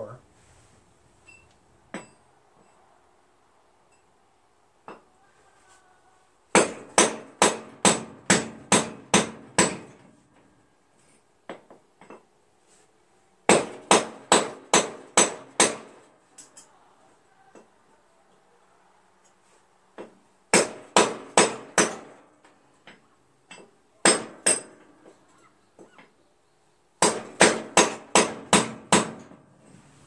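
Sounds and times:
hammer striking metal: 6.5 - 10.0, 20.5 - 22.2, 23.5 - 24.8.

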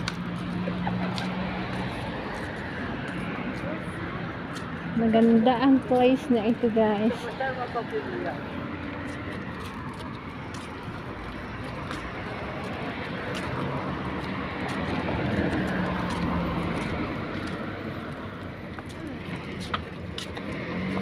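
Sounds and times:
cars passing on road: 0.0 - 21.0.

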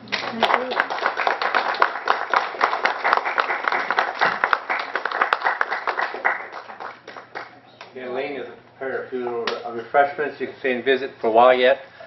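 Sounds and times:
small audience applauding: 0.0 - 7.9.

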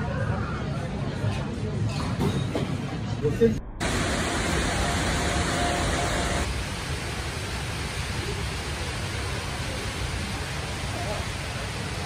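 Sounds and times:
indoor waterfall rushing: 3.8 - 12.0.

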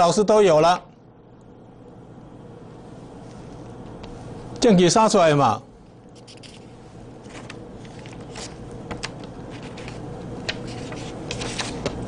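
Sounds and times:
steady low hum: 0.0 - 12.0
paper sheets rustling: 7.2 - 12.0.

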